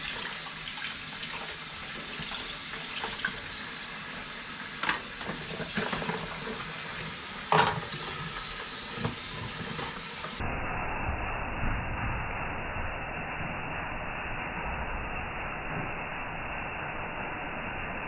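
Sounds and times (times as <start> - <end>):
tap running into bowl: 4.8 - 10.4.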